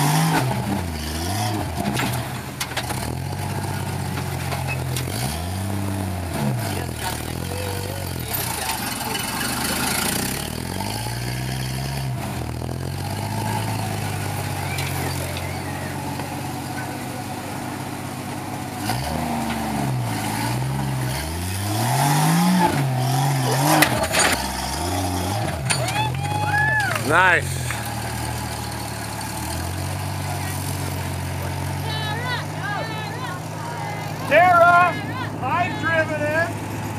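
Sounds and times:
off-road vehicle engine revving: 0.0 - 36.9.

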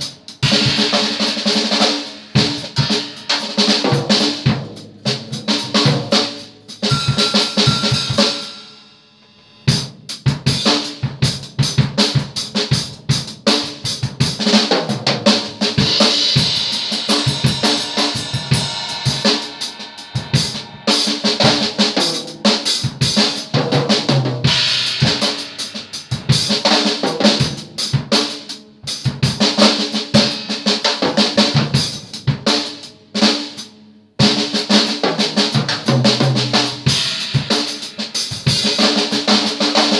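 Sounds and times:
drum kit fills: 0.0 - 39.9.

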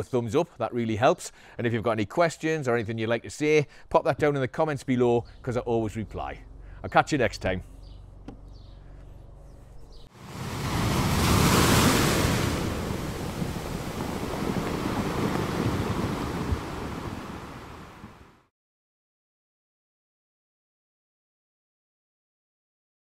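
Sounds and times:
ocean surf rushing: 10.2 - 18.5.

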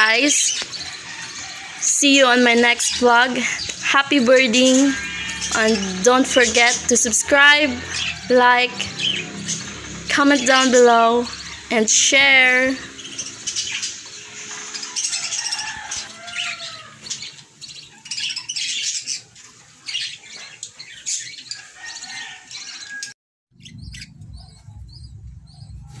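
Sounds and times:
budgerigars chattering: 0.0 - 23.0
low rumble: 23.6 - 26.0.

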